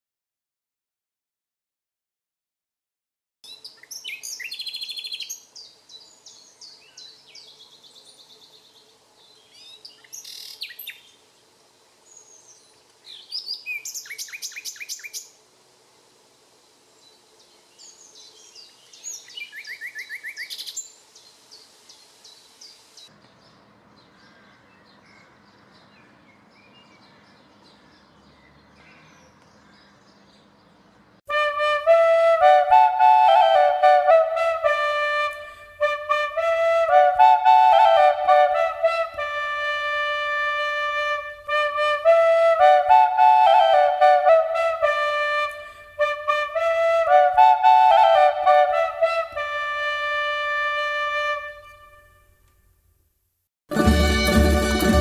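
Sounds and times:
songbirds chirping and trilling: 3.4s - 31.2s.

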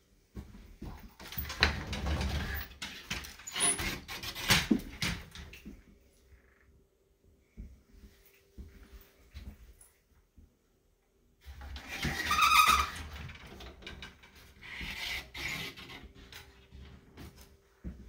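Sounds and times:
soft footsteps: 7.4s - 10.7s, 16.7s - 18.0s.

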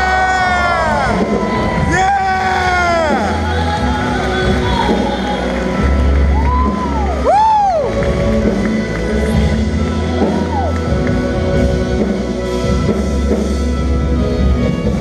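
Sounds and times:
person whooping: 0.0s - 3.6s, 6.4s - 7.9s
rock band with drums and guitar: 0.0s - 15.0s.

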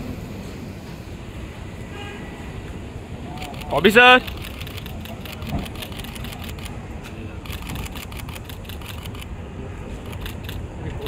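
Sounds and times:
camera shutters clicking: 3.4s - 6.8s, 7.4s - 9.3s, 10.0s - 10.6s.

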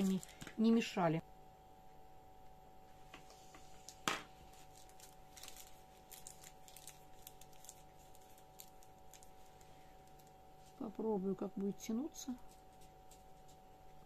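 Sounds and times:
plastic piping bag crinkling: 0.0s - 1.0s, 3.8s - 13.6s.

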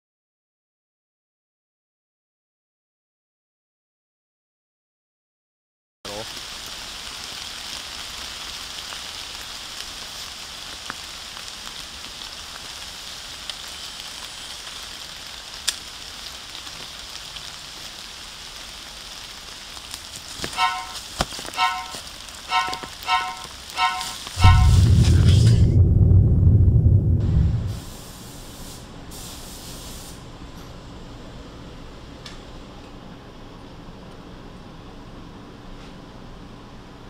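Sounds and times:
outdoor hiss: 6.1s - 25.6s, 27.4s - 37.0s
short high chirps: 20.6s - 21.0s, 21.6s - 24.9s.

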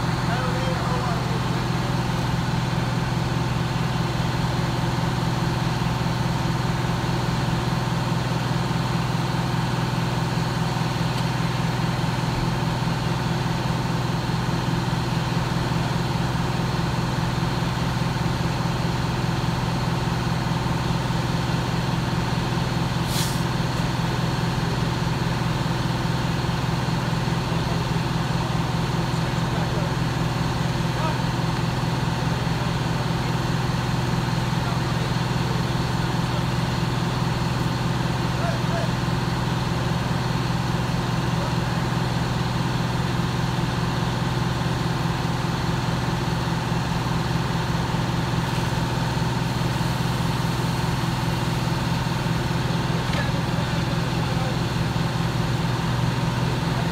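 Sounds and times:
diesel engine running: 0.0s - 56.9s
short hiss: 23.0s - 23.5s.

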